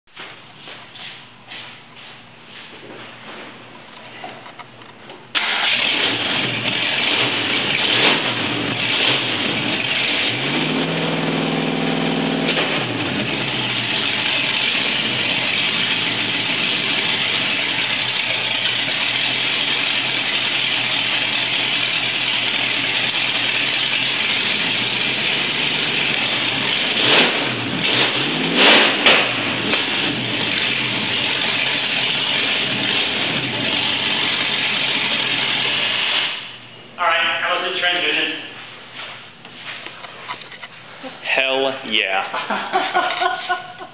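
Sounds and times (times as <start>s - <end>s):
car engine idling loudly: 5.4s - 28.2s, 29.3s - 36.2s
engine revving: 5.4s - 36.4s.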